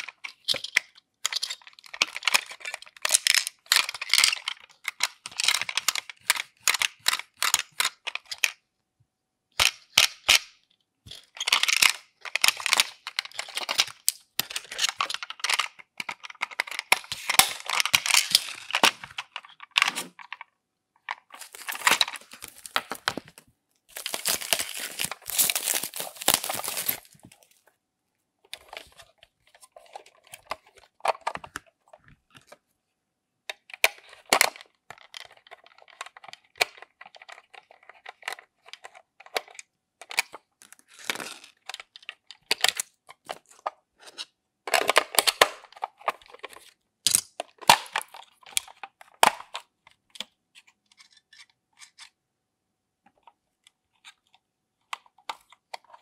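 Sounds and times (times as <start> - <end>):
foam mesh crinkling and rustling: 21.3 - 27.6.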